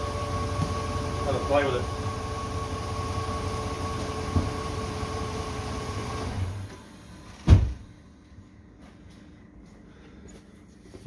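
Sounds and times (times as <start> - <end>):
engine cranking with whine: 0.0 - 7.4.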